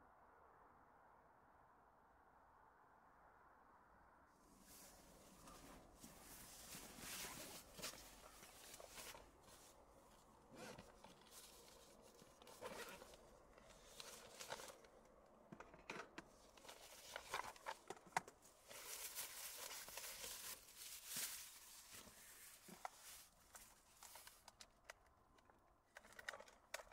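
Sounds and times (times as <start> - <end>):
faint rustling: 4.5 - 15.1, 16.3 - 24.8.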